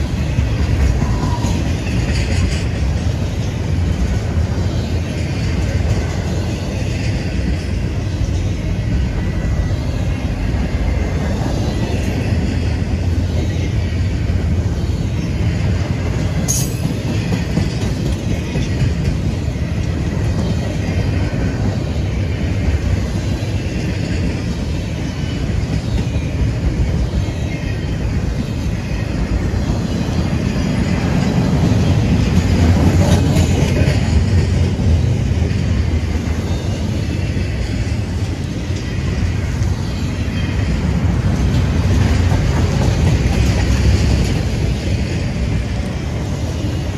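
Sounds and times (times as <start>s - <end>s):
train wheels rumbling on track: 0.0s - 46.9s.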